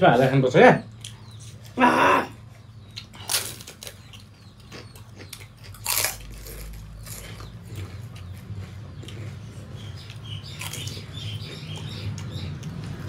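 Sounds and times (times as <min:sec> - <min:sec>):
chewing mouth noises: 0:02.8 - 0:13.0
crisp shells crunching: 0:05.7 - 0:07.4.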